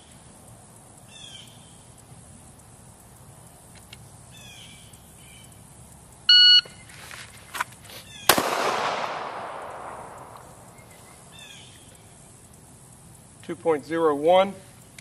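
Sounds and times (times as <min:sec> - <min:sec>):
shot timer beep: 0:06.3 - 0:06.7
pistol shot echoing: 0:08.3 - 0:10.9.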